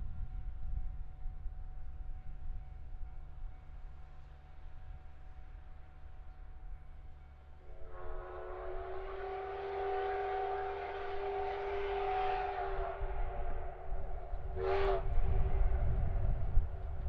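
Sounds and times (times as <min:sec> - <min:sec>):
low rumble of train: 0:00.0 - 0:17.0
steam locomotive whistle blasts: 0:07.6 - 0:16.0.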